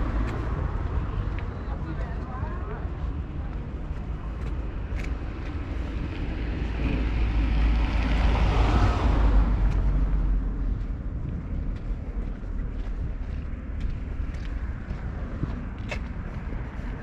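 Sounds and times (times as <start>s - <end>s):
low rumble: 0.0s - 17.0s
car passing by: 5.5s - 10.9s.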